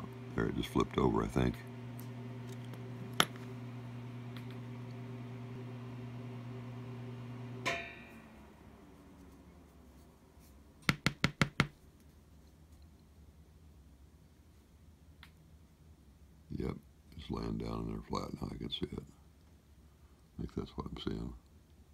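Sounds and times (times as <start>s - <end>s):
low hum: 0.0s - 10.1s.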